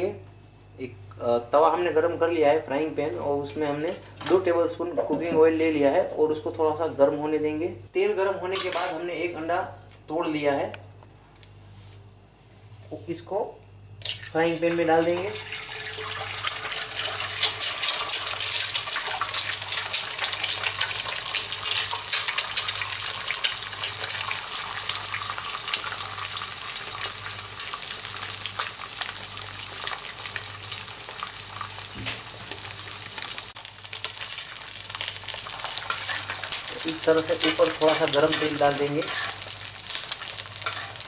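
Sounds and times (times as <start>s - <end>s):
egg sizzling in a frying pan: 14.0s - 41.0s.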